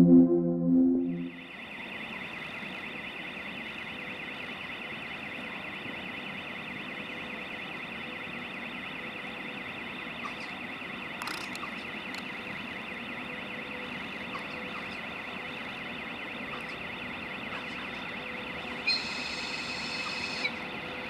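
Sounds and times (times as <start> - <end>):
high warbling alarm tone: 0.0 - 3.2
railway station noise: 1.4 - 21.0.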